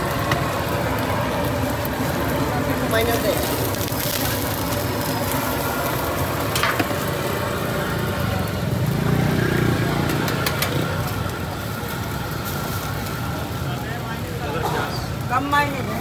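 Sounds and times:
engine rumble: 0.0s - 16.0s
steady roadside din: 0.0s - 16.0s.

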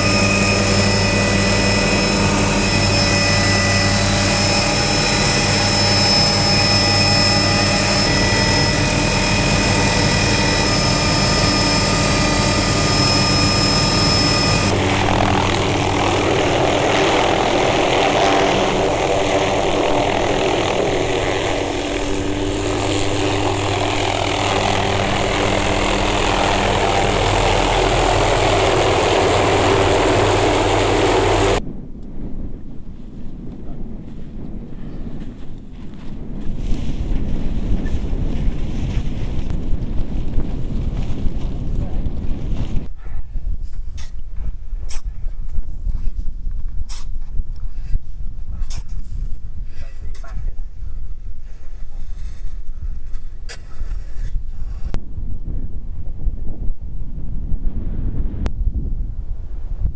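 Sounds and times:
helicopter hovering: 0.0s - 31.6s
helicopter engine whine: 0.0s - 32.0s
wind noise: 0.0s - 59.9s.

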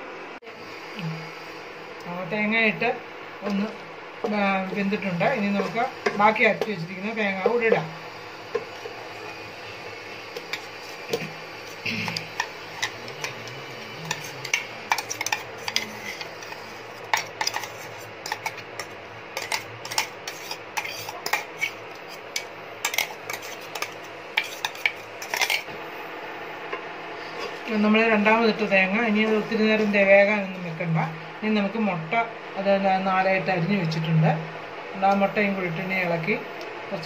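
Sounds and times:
spatula scraping a pan: 10.4s - 25.7s.

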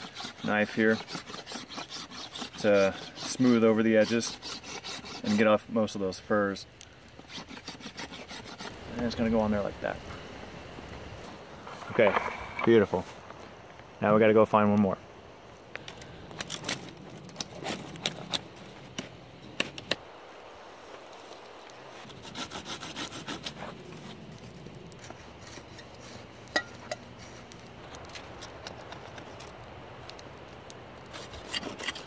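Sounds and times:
knife scraping bark off stick: 0.0s - 5.6s, 7.1s - 9.2s, 22.0s - 24.1s, 31.0s - 32.0s.

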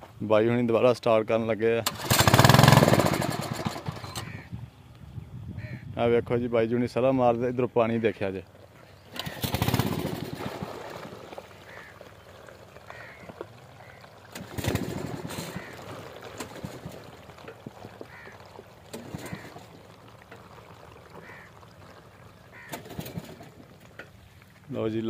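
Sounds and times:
crows cawing: 4.0s - 4.5s, 11.6s - 14.2s, 15.1s - 16.3s, 18.0s - 19.8s, 21.1s - 21.9s, 22.5s - 23.5s.

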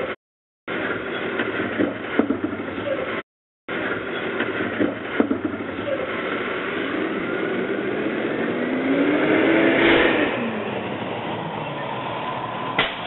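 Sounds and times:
garbage truck engine and hydraulics: 0.0s - 13.0s
sharp knocks of cart: 0.8s - 3.0s, 3.8s - 6.0s, 12.8s - 13.0s.

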